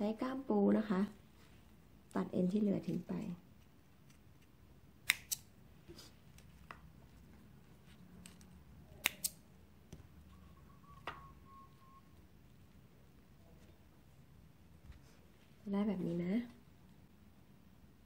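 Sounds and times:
small snips cutting line: 0:03.6 - 0:05.6, 0:08.2 - 0:09.4.

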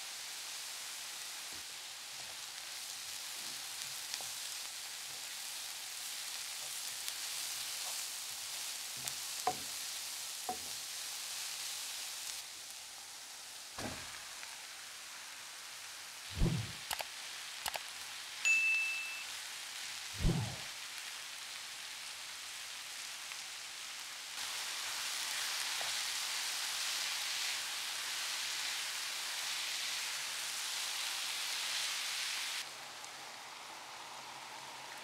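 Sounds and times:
vegetables sizzling in a frying pan: 0:00.0 - 0:18.5, 0:19.2 - 0:35.0
wooden spoon knocking against pan: 0:09.5 - 0:09.7.

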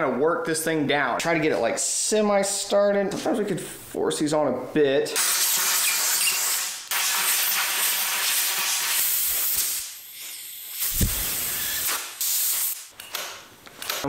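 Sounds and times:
air blow gun hissing: 0:05.3 - 0:12.9.

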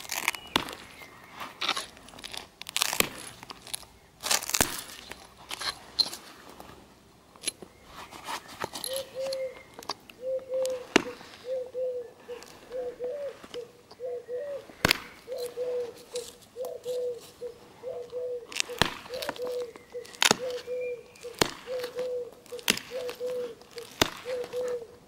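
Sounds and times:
flint knapping: 0:00.0 - 0:11.4, 0:14.8 - 0:25.0
dove cooing: 0:08.8 - 0:25.0.

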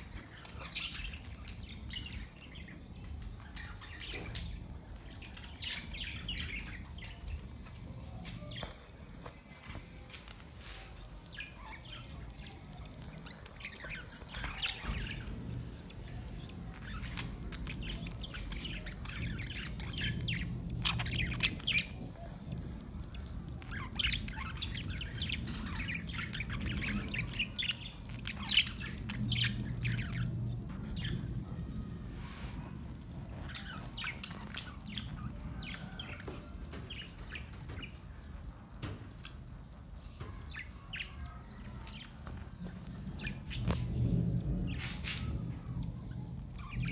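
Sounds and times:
budgerigars chirping: 0:00.0 - 0:07.4, 0:08.3 - 0:46.9.

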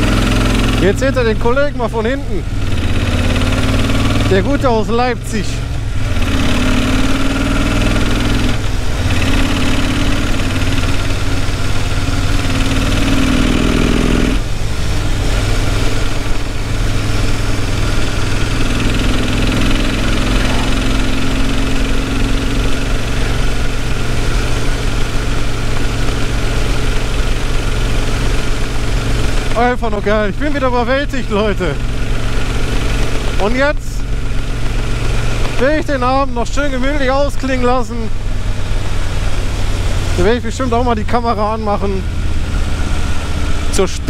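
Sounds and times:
motorcycle engine running: 0:00.0 - 0:44.0.

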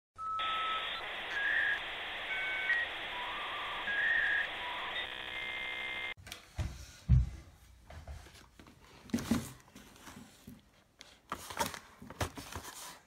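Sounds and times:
whistle-like electronic tones: 0:00.2 - 0:06.1
buzzy electronic tone: 0:00.4 - 0:06.2.

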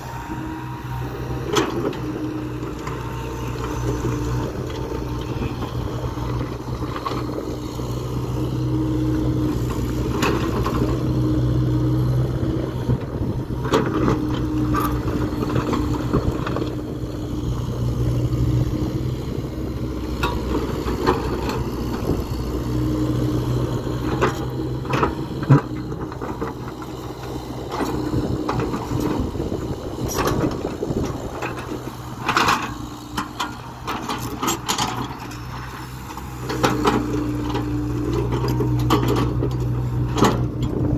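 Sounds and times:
excavator engine and hydraulics: 0:00.0 - 0:40.9.

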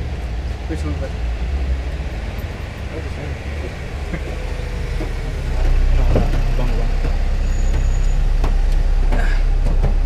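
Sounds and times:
vehicle engine idling: 0:00.0 - 0:10.0
short knocks: 0:05.0 - 0:10.0.

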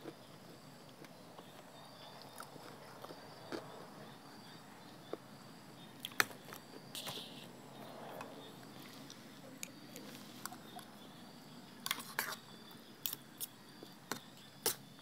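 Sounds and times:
faint chewing: 0:00.0 - 0:05.3, 0:08.1 - 0:10.9.

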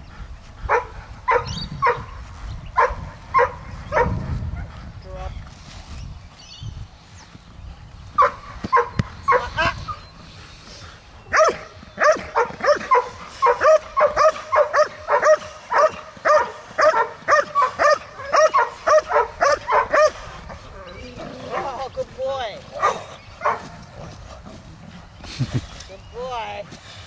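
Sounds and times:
dog barking: 0:00.7 - 0:02.1, 0:02.8 - 0:04.2, 0:08.2 - 0:09.5, 0:11.3 - 0:20.2, 0:22.8 - 0:23.7.

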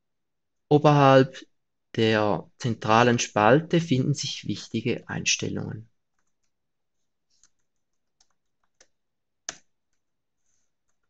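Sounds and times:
computer keyboard keystrokes: 0:06.1 - 0:06.6, 0:07.4 - 0:10.1.

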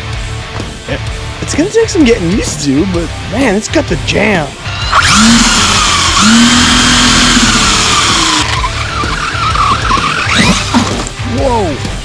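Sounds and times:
electric motor whining: 0:04.6 - 0:11.2
tires skidding in loose dirt: 0:08.4 - 0:11.0.

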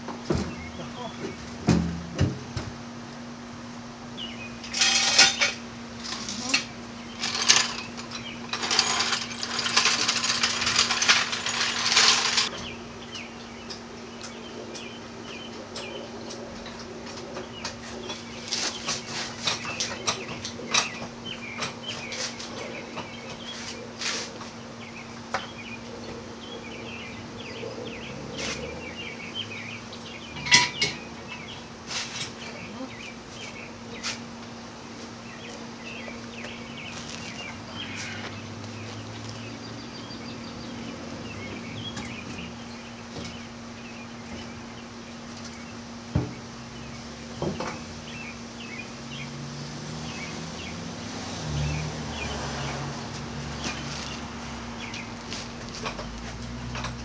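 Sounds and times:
scraping and rattling: 0:04.6 - 0:12.5
metal clanks and knocks: 0:30.4 - 0:31.4.

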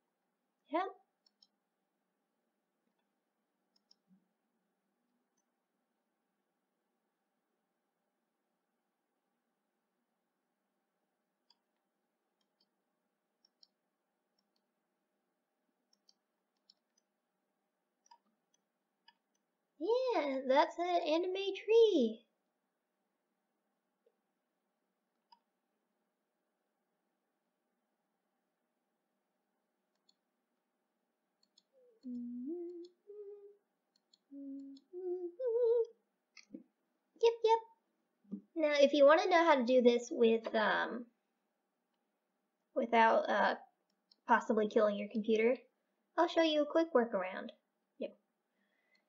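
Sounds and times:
computer mouse clicks: 0:01.2 - 0:01.6, 0:03.7 - 0:04.2, 0:12.4 - 0:12.8, 0:13.4 - 0:13.8, 0:15.9 - 0:17.1, 0:25.2 - 0:25.5, 0:29.9 - 0:30.2, 0:31.4 - 0:32.2, 0:33.9 - 0:34.9
person humming a tune: 0:31.8 - 0:33.6, 0:34.3 - 0:35.9.

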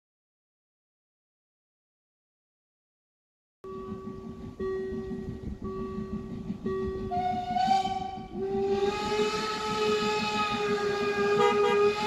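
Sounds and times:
steam hissing: 0:06.7 - 0:12.0
steam locomotive whistle: 0:07.1 - 0:12.0.

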